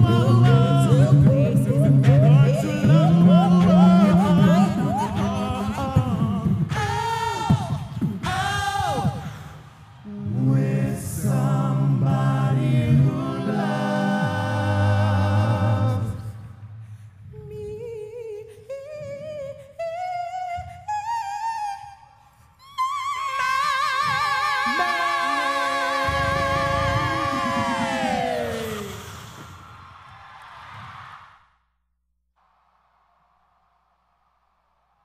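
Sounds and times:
woman singing with vibrato: 0.0s - 9.2s, 17.3s - 28.9s.

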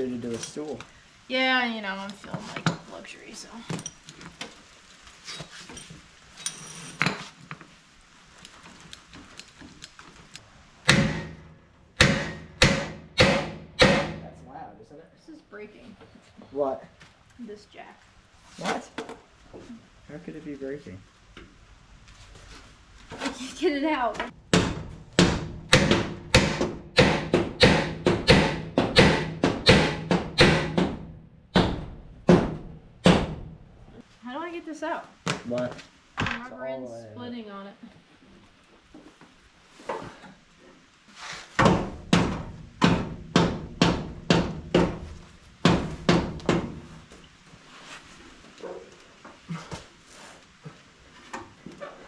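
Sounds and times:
hammer striking sheet metal: 10.9s - 14.4s, 24.5s - 33.4s.

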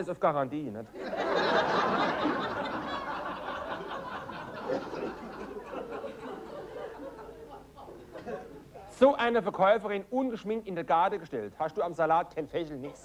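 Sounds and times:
audience laughing: 1.0s - 8.9s.

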